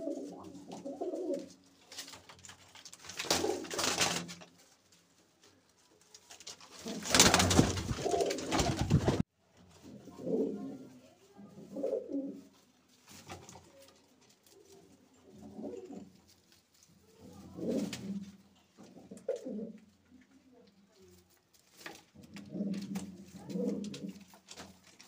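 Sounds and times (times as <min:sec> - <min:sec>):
pigeons cooing: 0:00.0 - 0:01.6, 0:14.6 - 0:16.1, 0:22.2 - 0:24.3.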